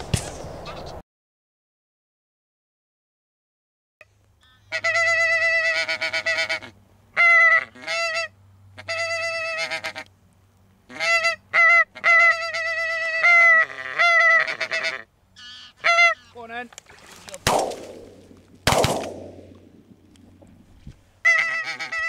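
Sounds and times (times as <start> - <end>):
geese honking: 4.4 - 10.1, 10.9 - 16.6, 21.2 - 22.0.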